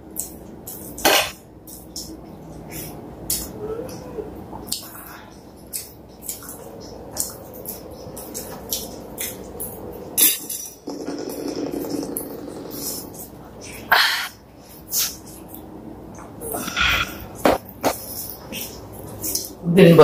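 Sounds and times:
wet chewing and smacking: 1.6 - 13.9, 17.3 - 19.6.

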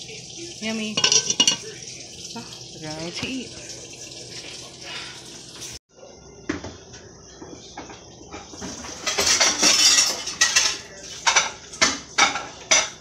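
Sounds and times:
dishes and utensils clinking: 0.7 - 3.4, 7.4 - 13.0.

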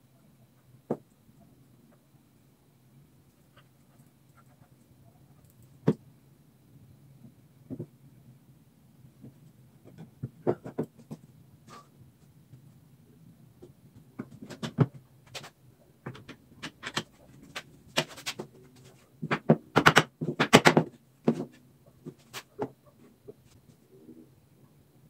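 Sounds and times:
wood and tools knocking: 9.2 - 11.2.

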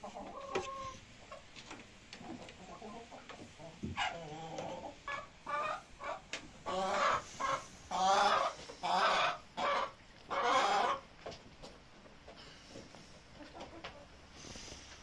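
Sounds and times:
chickens squawking: 0.0 - 1.5, 2.6 - 11.1
chickens clucking: 0.0 - 15.0.

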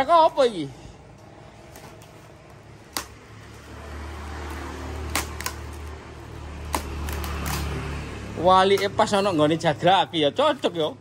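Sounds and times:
sharp snaps: 2.8 - 3.3, 5.0 - 6.0, 6.6 - 7.8
packing tape pulled: 5.0 - 5.9, 6.7 - 7.8.

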